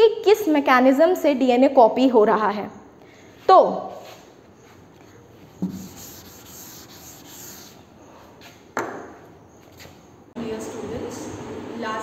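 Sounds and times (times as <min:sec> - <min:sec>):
duster rubbing on chalkboard: 0:05.0 - 0:07.9.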